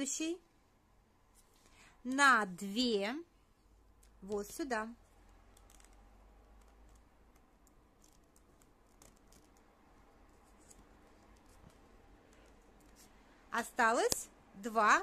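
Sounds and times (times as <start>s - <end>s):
paper tubes clicking and tapping: 5.2s - 13.1s.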